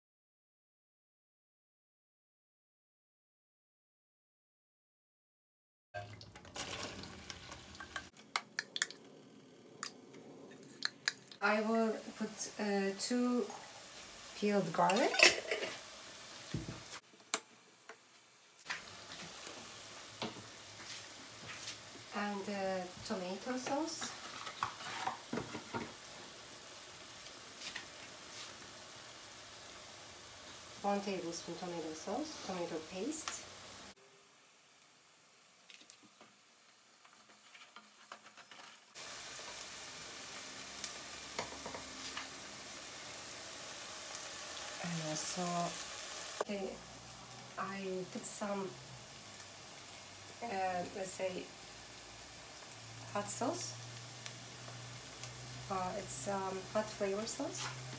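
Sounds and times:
food sizzling in a pot: 6.0s - 9.9s, 10.6s - 57.9s
butter and onion frying hiss: 6.0s - 57.9s.

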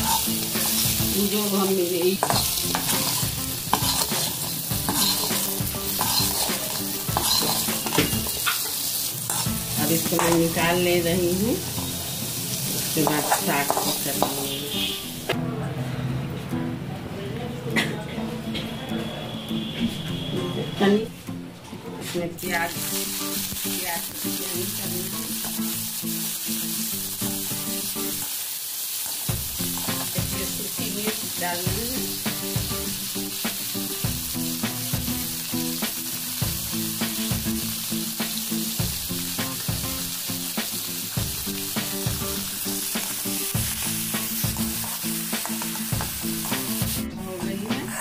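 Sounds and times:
onions sizzling in oil: 0.0s - 15.3s, 22.4s - 47.1s
spatula scraping and tapping pan: 2.0s - 10.5s, 42.9s - 46.8s.

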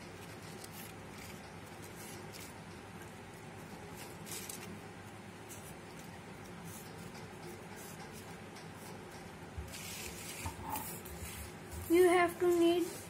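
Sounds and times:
low room hum: 0.0s - 13.0s
paper rustling and scraping on table: 3.8s - 4.8s, 9.6s - 13.0s.

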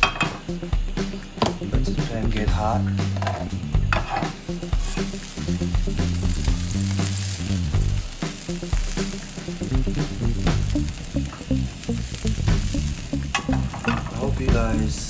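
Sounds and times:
music playing: 0.0s - 15.0s
butter sizzling in pan: 3.1s - 15.0s.

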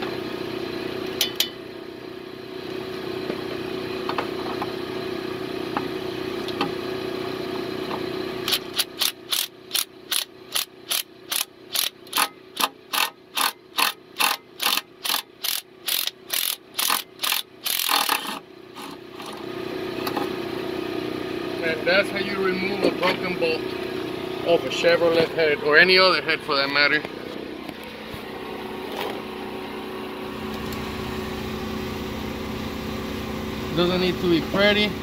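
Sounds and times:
hand ratchet clicking: 8.5s - 18.9s.

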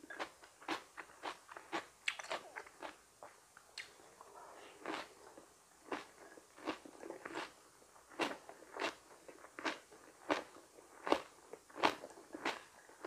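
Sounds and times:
chewing crunchy raw vegetables: 4.8s - 13.0s.

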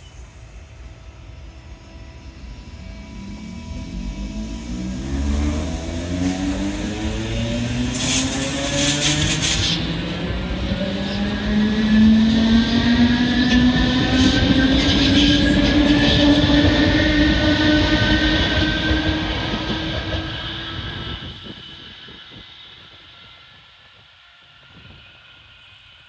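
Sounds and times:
wheels rumbling on rail: 2.3s - 26.0s.

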